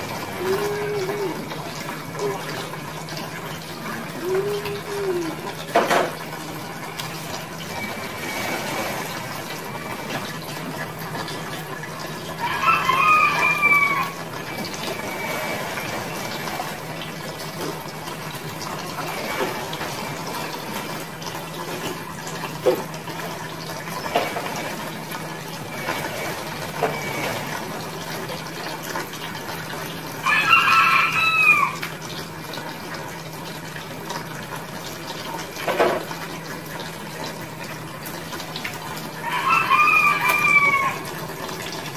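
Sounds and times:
water splashing and trickling: 0:00.0 - 0:41.9
rooster crowing: 0:12.4 - 0:14.2, 0:30.2 - 0:31.8, 0:39.2 - 0:41.0.

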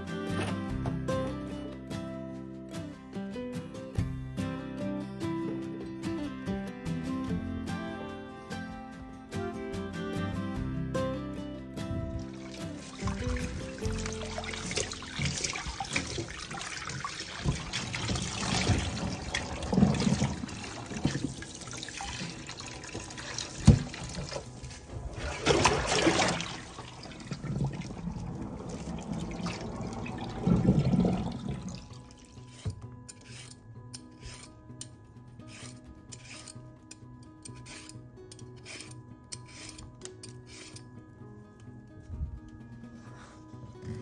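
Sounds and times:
tap water running into pot: 0:12.2 - 0:32.7
sponge scrubbing pot: 0:12.2 - 0:34.5, 0:35.5 - 0:36.6, 0:37.5 - 0:37.9, 0:38.6 - 0:40.8.

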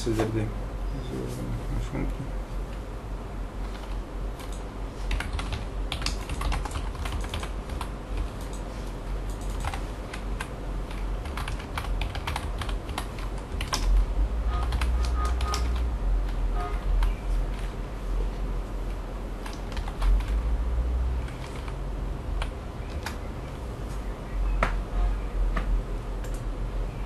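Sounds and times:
low steady hum: 0:00.0 - 0:27.0
computer keyboard typing: 0:03.6 - 0:17.7, 0:19.4 - 0:20.4, 0:21.2 - 0:21.8, 0:22.4 - 0:23.3, 0:24.6 - 0:26.5.

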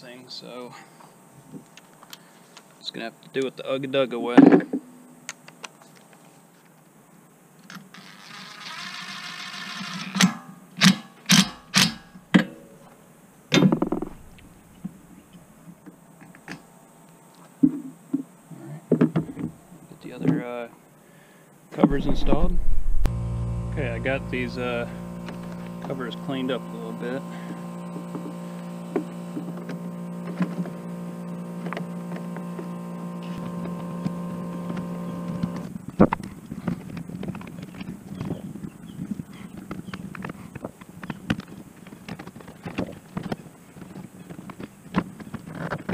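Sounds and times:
steady hum: 0:12.1 - 0:15.7, 0:21.7 - 0:37.3
impact driver hammering: 0:13.6 - 0:14.4.

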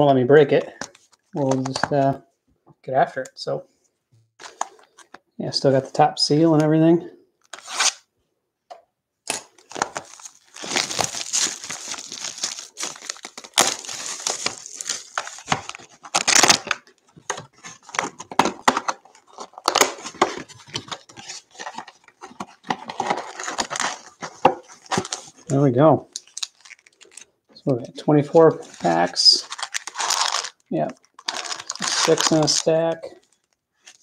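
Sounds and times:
plastic shrink-wrap crinkling and tearing: 0:09.3 - 0:25.5, 0:26.1 - 0:27.3, 0:28.6 - 0:34.0
cardboard box handled and opened: 0:09.7 - 0:25.4.

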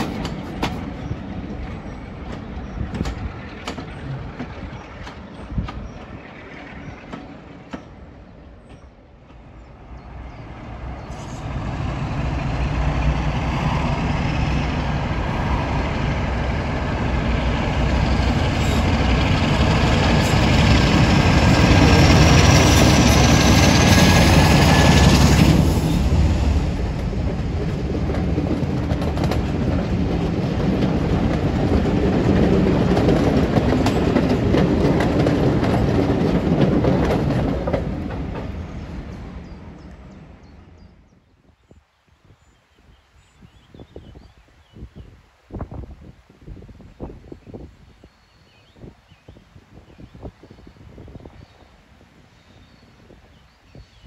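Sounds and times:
diesel locomotive passing: 0:00.0 - 0:41.2.

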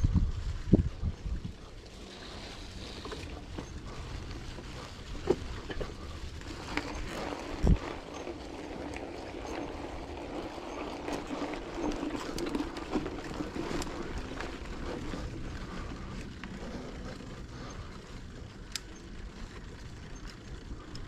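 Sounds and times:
wind noise on microphone: 0:00.0 - 0:03.0, 0:03.8 - 0:08.1
bicycle tyres rolling: 0:00.0 - 0:21.0.

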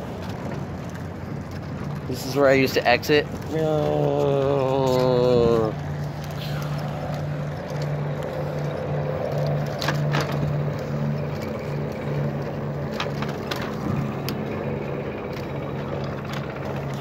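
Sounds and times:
bicycle rattling clicks: 0:00.0 - 0:17.0
bicycle tyres rumbling on concrete: 0:00.0 - 0:17.0.

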